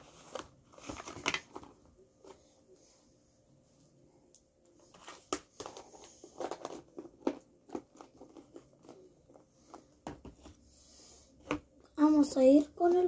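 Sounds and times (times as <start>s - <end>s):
plastic container clicks and crackles: 5.3s - 9.0s.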